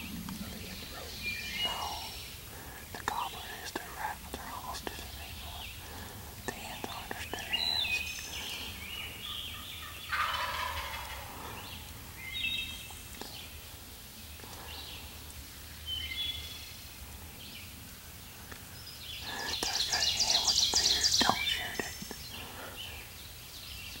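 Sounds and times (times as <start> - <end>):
turkey gobbling: 9.5 - 11.4.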